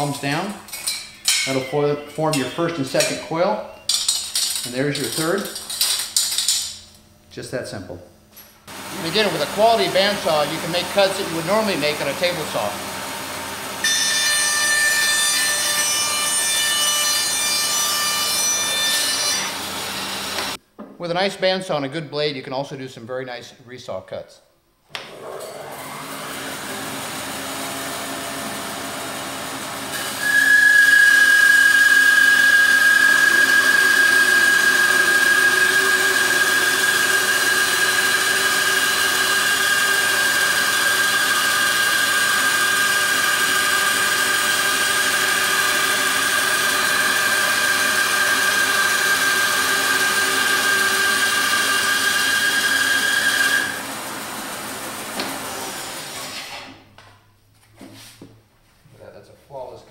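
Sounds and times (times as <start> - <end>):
bandsaw cutting wood: 8.7 - 20.6, 25.0 - 56.7.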